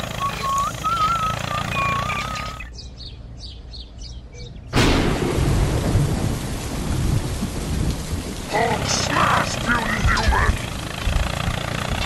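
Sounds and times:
faint bird chirps: 0.2s - 4.8s
thunder crack: 4.8s - 10.2s
thunder rumbling: 4.8s - 11.4s
heavy rain: 4.8s - 11.8s.

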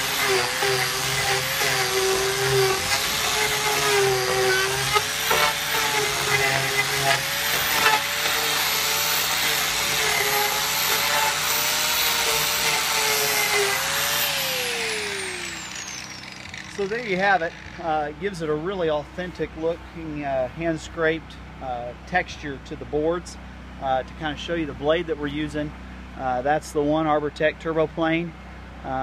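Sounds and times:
blade shaving wood hiss: 0.0s - 17.8s
angle grinder motor whine: 0.0s - 18.2s.

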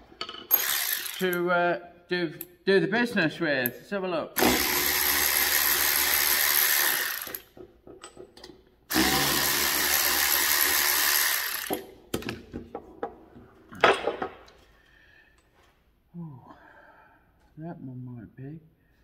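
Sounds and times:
cordless ratchet spinning: 0.5s - 1.4s, 4.4s - 7.5s, 8.9s - 11.8s.

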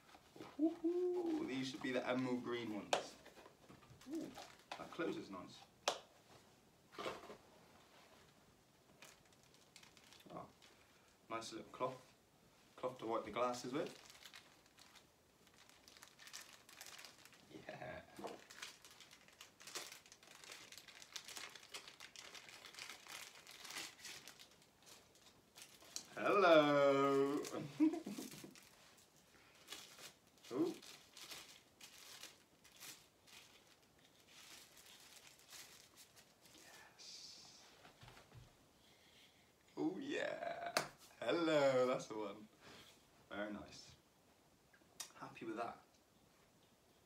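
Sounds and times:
plastic wrapping crinkling: 0.0s - 5.1s, 8.9s - 11.1s, 13.4s - 36.9s.

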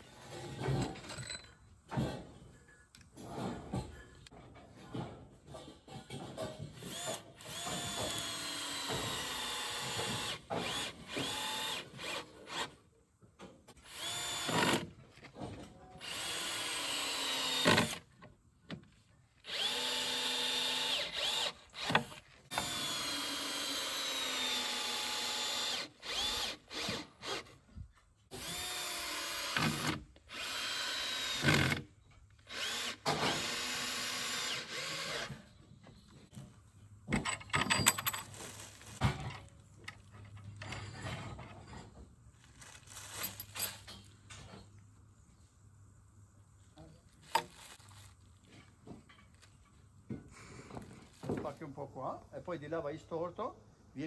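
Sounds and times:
cordless drill whining: 6.8s - 12.8s, 13.8s - 14.9s, 16.0s - 18.0s, 19.4s - 27.6s, 28.3s - 31.8s, 32.4s - 35.5s.

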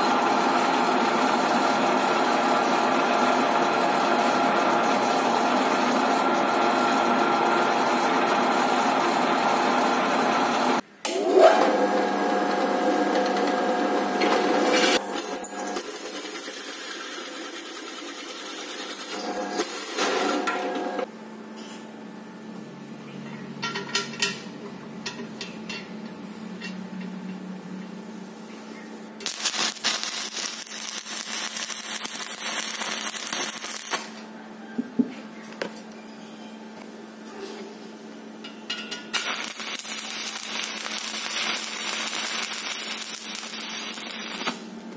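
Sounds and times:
drill press cutting steel: 11.1s - 21.0s
welding arc crackling and hissing: 29.2s - 34.2s, 39.1s - 44.7s.

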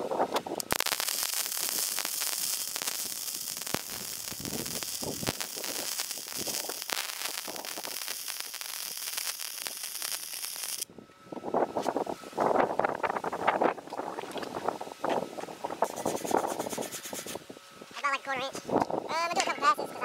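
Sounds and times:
welding arc hissing and crackling: 0.6s - 10.9s, 15.8s - 17.4s.

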